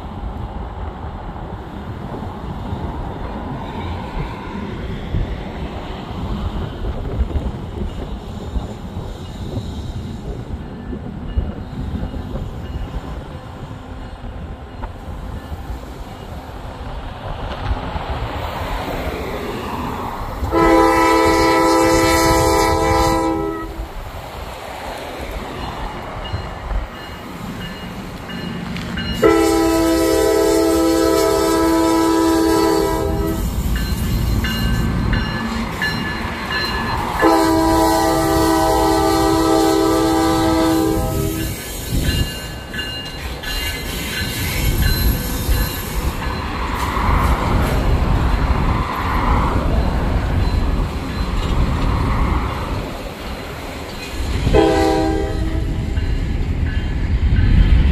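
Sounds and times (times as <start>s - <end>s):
train rumbling and rail clatter: 0.0s - 57.9s
locomotive air horn blasts: 20.5s - 23.9s, 29.2s - 33.5s, 37.2s - 41.5s, 54.5s - 55.9s.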